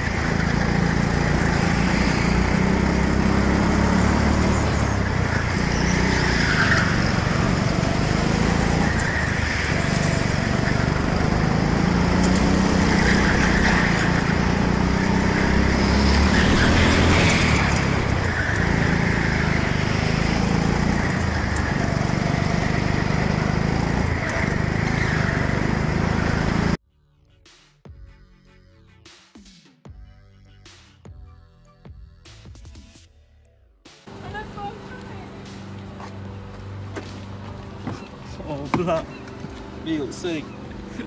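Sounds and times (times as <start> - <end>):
go-kart engine revving: 0.0 - 26.8, 37.8 - 41.0
other karts' engines: 0.0 - 26.8, 34.1 - 41.0.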